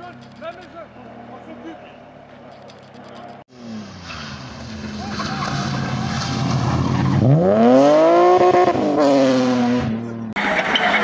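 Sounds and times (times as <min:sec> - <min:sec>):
noisier car sound: 0:00.0 - 0:11.0
rally car engine revving: 0:03.5 - 0:11.0.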